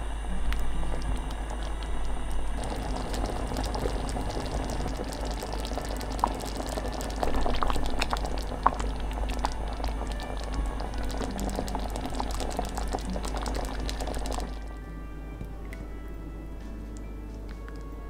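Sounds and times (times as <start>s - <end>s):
sauce bubbling in a pot: 0.4s - 14.8s.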